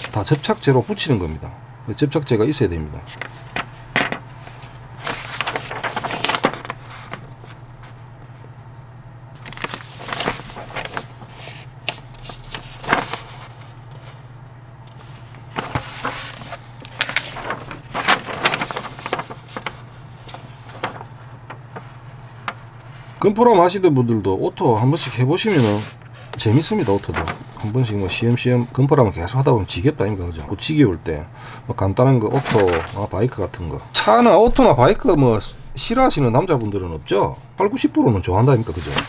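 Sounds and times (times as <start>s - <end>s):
paper pages rustling: 3.1s - 8.4s, 9.4s - 14.3s, 14.9s - 23.2s, 25.1s - 28.1s, 32.3s - 37.5s, 38.5s - 39.0s.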